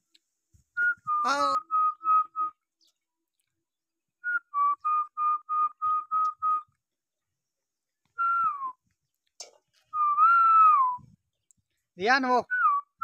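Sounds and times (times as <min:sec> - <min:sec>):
person whistling: 0:00.8 - 0:02.6, 0:04.2 - 0:06.7, 0:08.2 - 0:08.8, 0:09.9 - 0:11.2.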